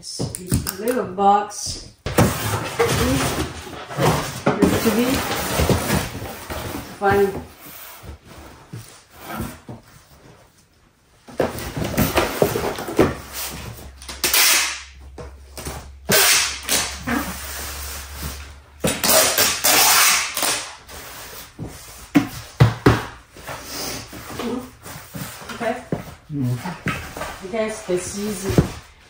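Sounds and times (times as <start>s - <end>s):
cardboard boxes being handled: 2.0s - 14.0s, 20.9s - 29.0s
packing tape gun snapping: 14.0s - 14.9s, 16.1s - 17.0s, 18.9s - 20.7s.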